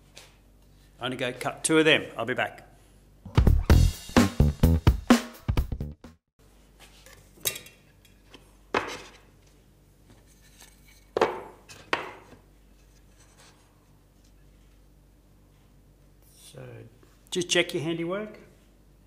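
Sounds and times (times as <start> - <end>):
background music: 3.3 - 6.2.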